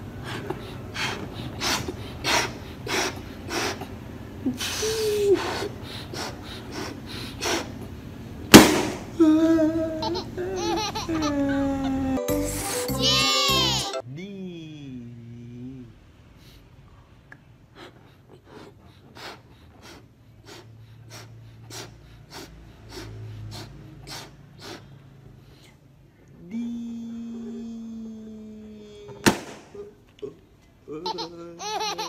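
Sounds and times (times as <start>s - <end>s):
balloon bursting pop: 8.5s - 9.1s, 29.2s - 29.8s
balloon blown up in puffs: 8.5s - 9.2s.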